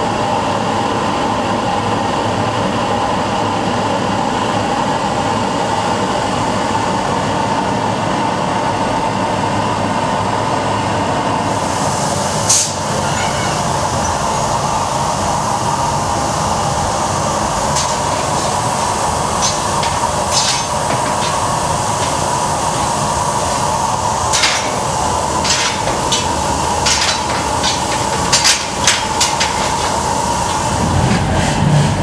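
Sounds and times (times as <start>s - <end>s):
gas forge rushing: 11.5s - 32.0s.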